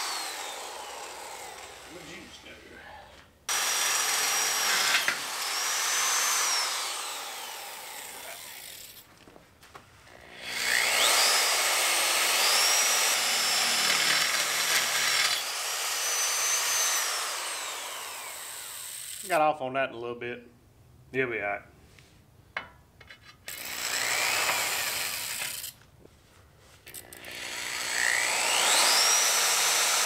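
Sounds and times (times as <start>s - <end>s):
electric drill motor whine: 0.0s - 2.1s, 3.5s - 9.0s, 10.1s - 19.2s, 23.5s - 25.7s, 26.9s - 30.0s
drill bit cutting steel: 0.0s - 2.2s, 3.5s - 9.0s, 10.2s - 19.3s, 23.5s - 25.8s, 26.9s - 30.0s.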